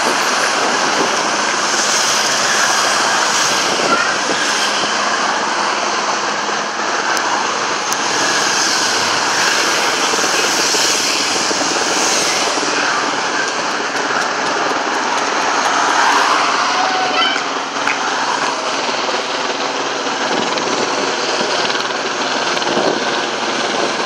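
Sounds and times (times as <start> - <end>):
cars and motorcycles roaring past: 0.0 - 18.8
aircraft engine droning overhead: 0.0 - 24.0.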